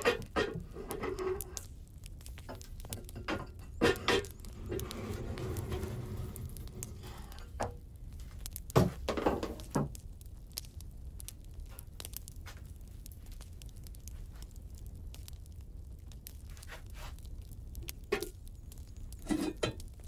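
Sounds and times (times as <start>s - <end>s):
rustling and scraping: 0.0s - 10.0s, 16.2s - 17.3s, 19.2s - 19.9s.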